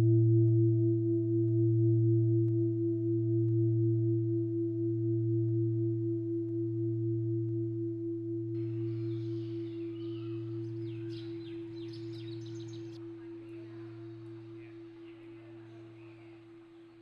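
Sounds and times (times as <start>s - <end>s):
faint outdoor background sound: 8.5s - 17.0s
singing bowl ringing: 8.6s - 16.0s.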